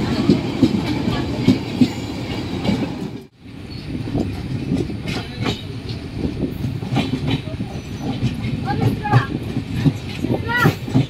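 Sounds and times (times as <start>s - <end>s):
train rumble: 0.0s - 11.0s
train wheel knocks: 4.0s - 11.0s.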